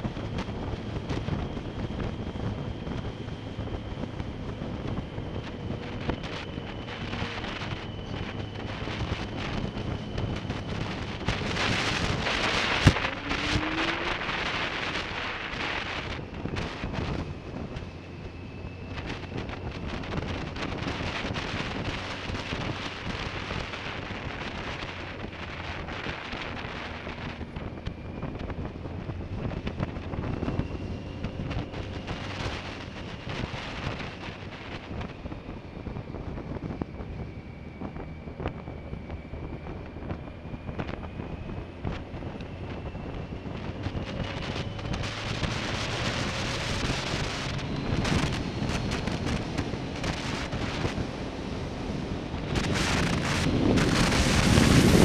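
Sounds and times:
motorcycle engine running: 0:00.0 - 0:35.1
faint whining tones: 0:00.0 - 0:55.0
wind rushing over microphone: 0:00.0 - 0:55.0.

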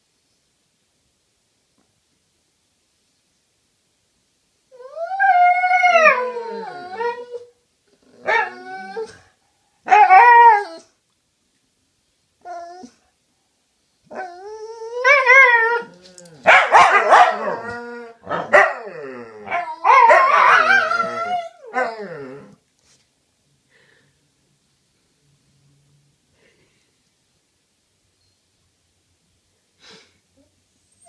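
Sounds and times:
dogs howling and whining: 0:04.7 - 0:11.0, 0:12.4 - 0:13.0, 0:14.1 - 0:22.6.

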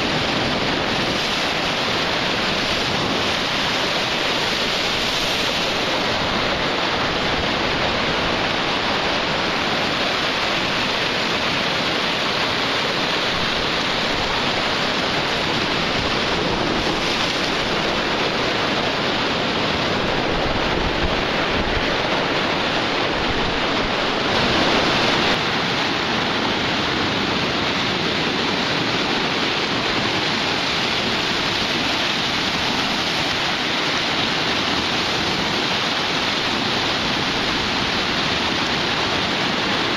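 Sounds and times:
surf breaking on beach: 0:00.0 - 0:39.9.

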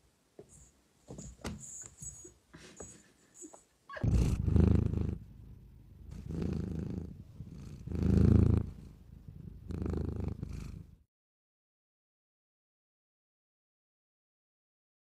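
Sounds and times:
cat purring: 0:03.9 - 0:11.0.

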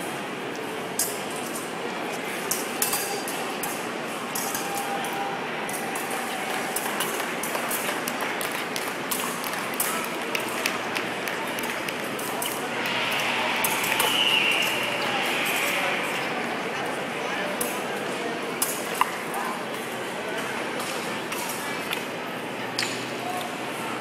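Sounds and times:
murmur of crowd in hall: 0:00.0 - 0:24.0
fencing blades clinking: 0:02.5 - 0:05.8.

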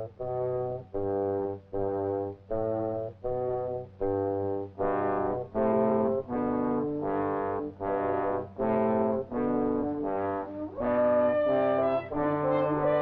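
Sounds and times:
brass held notes: 0:00.0 - 0:13.0.

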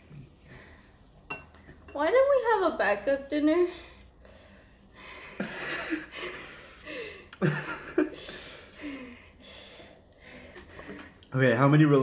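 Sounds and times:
people laughing breathily: 0:05.1 - 0:09.4.

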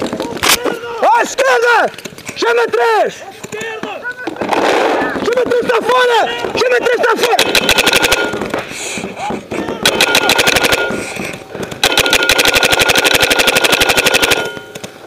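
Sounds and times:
automatic toy gun fire: 0:07.3 - 0:08.5, 0:09.8 - 0:11.0, 0:11.8 - 0:14.7.

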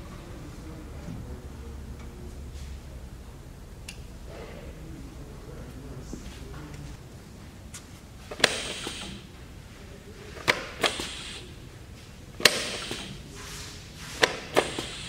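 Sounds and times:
pneumatic vise metallic clack: 0:08.3 - 0:09.3, 0:10.4 - 0:11.5, 0:12.4 - 0:13.2, 0:14.1 - 0:15.0
short hiss of air: 0:08.4 - 0:09.3, 0:10.7 - 0:11.5, 0:12.5 - 0:15.0.

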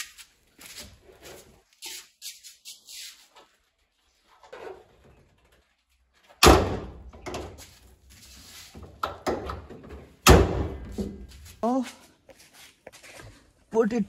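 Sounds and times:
car bonnet slamming shut: 0:06.4 - 0:07.0, 0:10.2 - 0:10.9.

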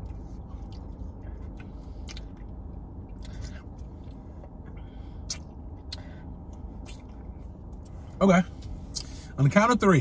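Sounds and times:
lip smacks: 0:00.0 - 0:04.6, 0:05.2 - 0:08.0.

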